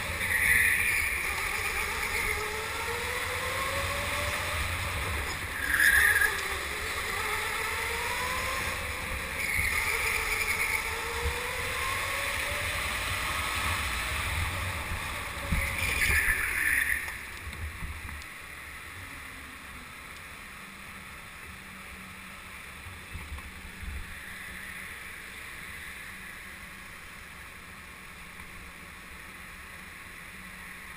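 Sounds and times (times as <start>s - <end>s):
tyre squeals: 0.0s - 2.5s, 5.3s - 6.7s, 9.2s - 11.1s, 15.5s - 17.2s
electric go-kart motor whine: 0.0s - 30.9s.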